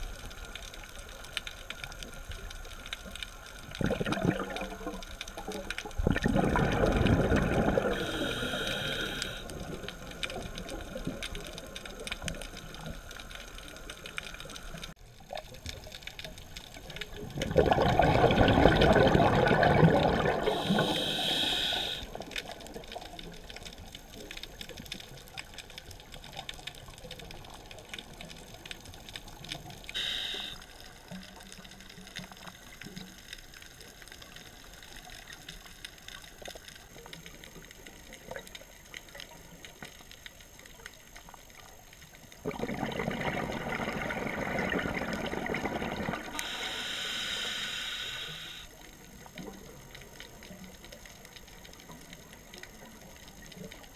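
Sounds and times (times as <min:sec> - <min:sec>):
faint underwater crackling: 0:00.0 - 0:53.9
diver's exhaled bubbles gushing: 0:03.6 - 0:13.1, 0:16.8 - 0:23.6, 0:42.4 - 0:46.6.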